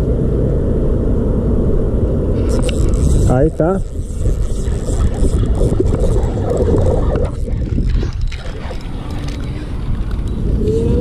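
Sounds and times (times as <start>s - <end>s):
wind buffeting microphone: 0.0s - 11.0s
faint clicks of fishing reel: 2.4s - 11.0s.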